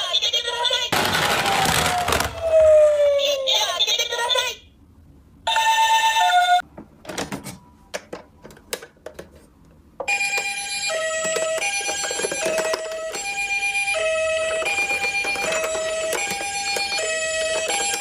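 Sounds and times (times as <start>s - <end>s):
toy ambulance siren: 1.2s - 3.7s, 10.1s - 18.0s
two-tone toy siren: 1.3s - 3.6s, 10.1s - 18.0s.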